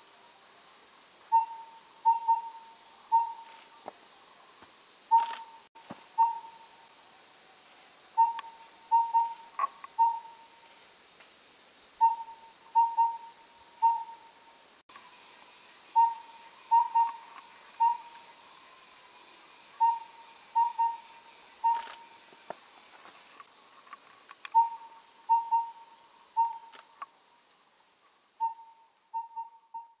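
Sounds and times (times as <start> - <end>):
steady high-pitched hiss: 0.0 - 30.0
owl whistled hoot: 1.3 - 3.5, 6.2 - 6.7, 8.2 - 10.5, 12.0 - 14.3, 15.9 - 17.2, 17.8 - 18.2, 19.8 - 22.0, 24.5 - 26.7, 28.4 - 30.0.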